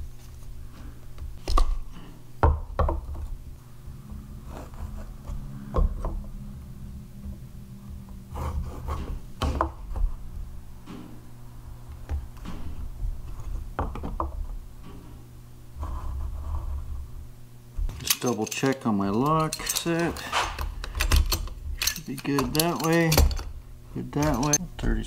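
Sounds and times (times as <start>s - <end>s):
steady low hum: 0.0s - 25.0s
tools clicking and tapping: 17.9s - 24.9s.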